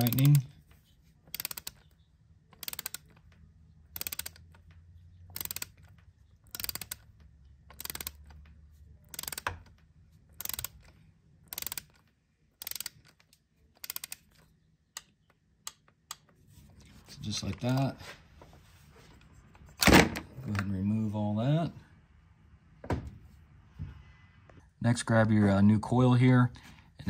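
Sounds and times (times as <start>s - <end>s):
ratchet wrench clicking: 0.0s - 0.4s, 1.3s - 1.9s, 2.5s - 3.3s, 3.9s - 8.4s, 9.1s - 9.7s, 10.3s - 12.0s, 12.6s - 14.4s.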